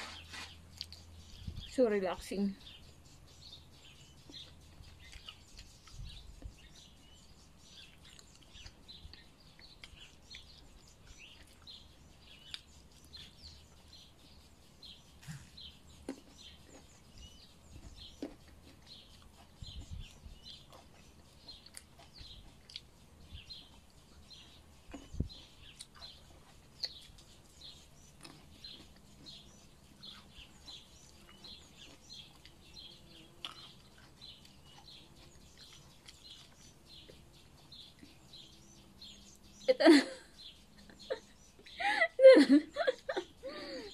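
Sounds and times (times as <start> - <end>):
bird chirping: 0.0 - 43.9
clicks and knocks from eating: 15.2 - 17.1, 17.7 - 27.3.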